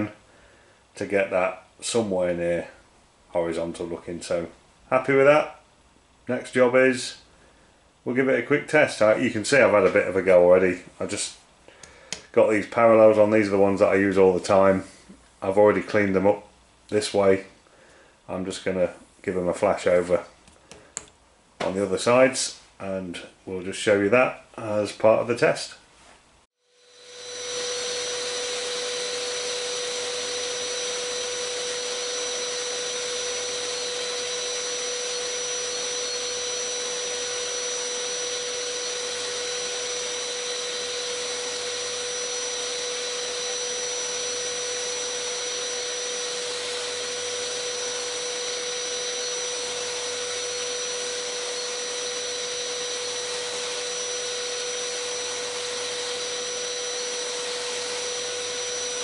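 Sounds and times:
shop vacuum running: 26.6s - 59.0s.

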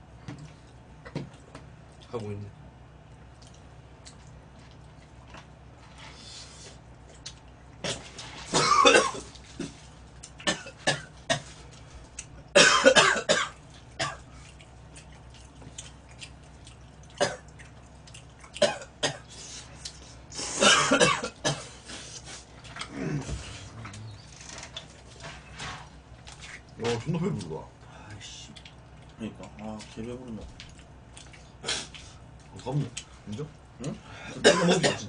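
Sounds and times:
man coughing: 7.9s - 9.8s, 12.6s - 14.2s, 18.6s - 19.3s, 20.5s - 21.8s, 34.2s - 35.0s.

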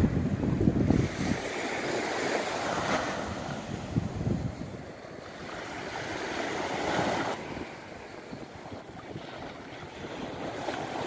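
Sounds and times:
waves washing onto a beach: 0.0s - 11.0s
wind on microphone: 0.0s - 11.0s.

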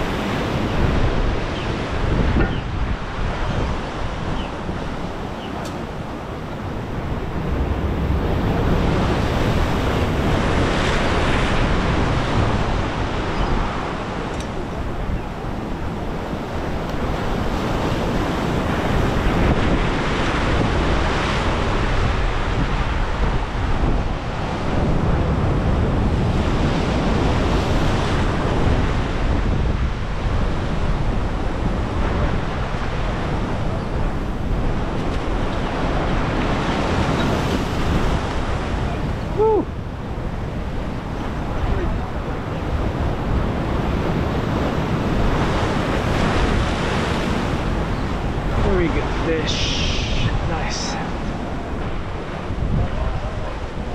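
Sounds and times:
surf breaking around pilings: 0.0s - 53.9s
wind buffeting microphone: 0.0s - 53.9s.

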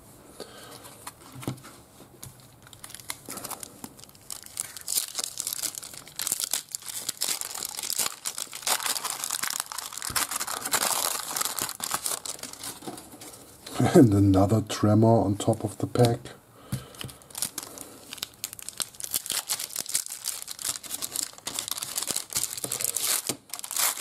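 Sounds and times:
wrapper tearing and crinkling: 2.6s - 13.0s, 17.1s - 24.0s.

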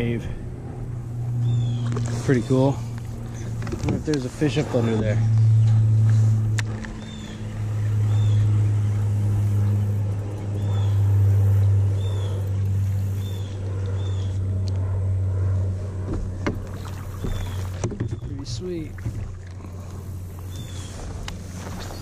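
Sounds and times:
steady low drone: 0.0s - 22.0s
bird chirping: 1.4s - 2.5s, 7.0s - 8.9s, 9.7s - 11.2s.

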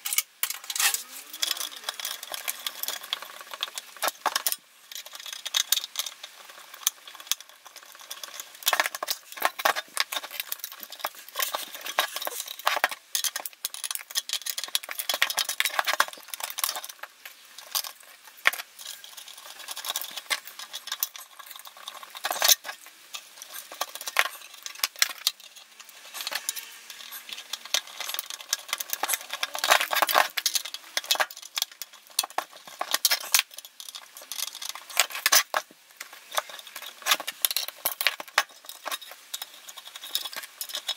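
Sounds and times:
metal tools clicking and scraping: 0.0s - 40.9s.

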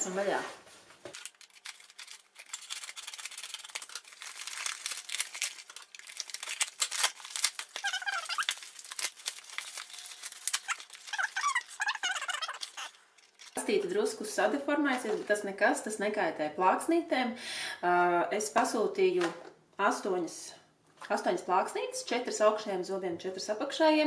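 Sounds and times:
bubble wrap crackling: 0.0s - 13.6s
plastic squeaks: 1.1s - 13.6s
scissors cutting paper mailer: 1.1s - 13.6s.

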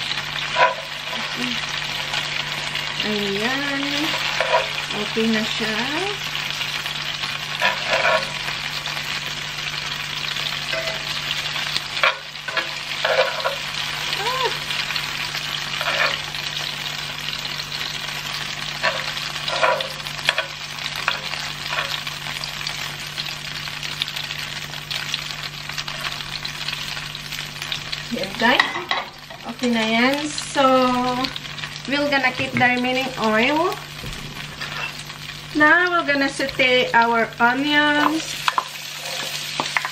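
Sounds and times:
beef sizzling in hot oil: 0.0s - 39.9s
metal tongs scraping a pan: 0.4s - 3.0s, 3.7s - 5.6s, 7.3s - 9.0s, 9.8s - 14.2s, 15.3s - 22.4s, 34.4s - 35.2s, 38.0s - 39.9s.

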